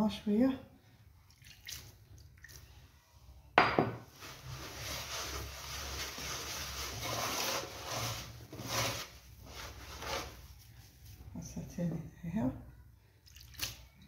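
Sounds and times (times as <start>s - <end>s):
hands rubbing semolina in a bowl: 4.1s - 11.4s.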